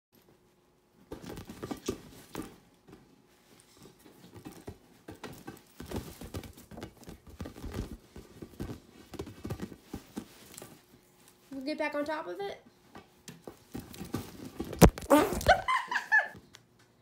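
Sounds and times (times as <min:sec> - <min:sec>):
soft thumps and pats on ball: 0:04.3 - 0:10.8
bedspread rustling: 0:05.6 - 0:11.6.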